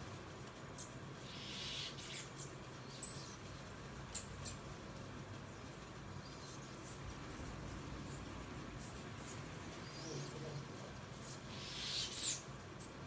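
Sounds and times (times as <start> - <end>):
high squeaky bird chirps: 11.2 - 13.0.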